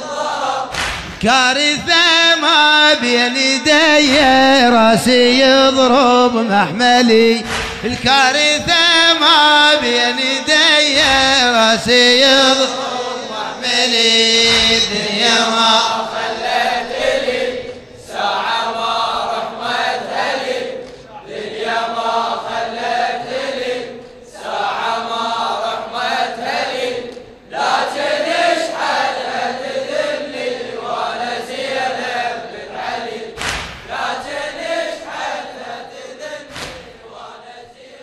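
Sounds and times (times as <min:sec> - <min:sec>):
men chanting a refrain: 0:00.0 - 0:38.0
sharp knocks: 0:07.4 - 0:08.2, 0:14.4 - 0:15.2, 0:33.4 - 0:34.0, 0:36.5 - 0:37.0.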